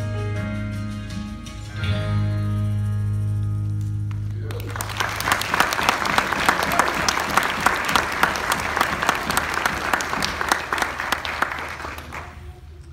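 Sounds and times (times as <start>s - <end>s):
congregation applauding: 4.1s - 12.7s.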